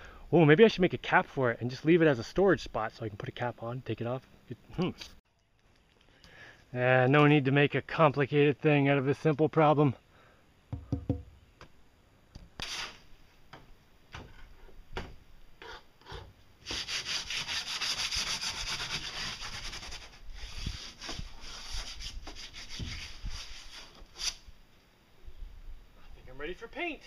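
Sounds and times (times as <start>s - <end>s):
hand sanding strokes: 16.6s - 24.5s.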